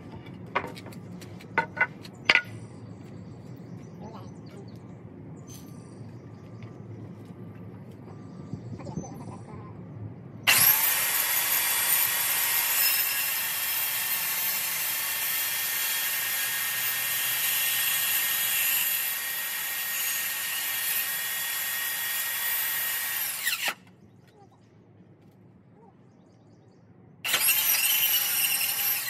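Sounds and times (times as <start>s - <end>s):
power tool cutting wood: 10.5s - 23.8s, 27.3s - 29.0s.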